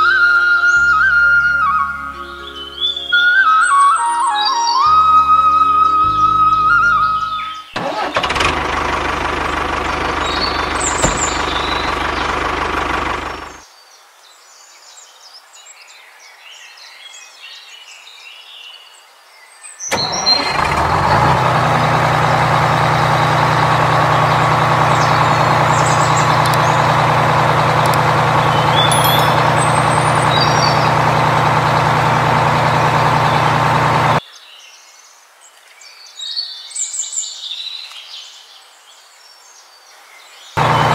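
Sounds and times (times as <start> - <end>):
motor running: 7.8 - 13.6, 19.9 - 34.2, 40.6 - 40.9
faint bird chirps: 10.0 - 13.8, 28.4 - 31.1.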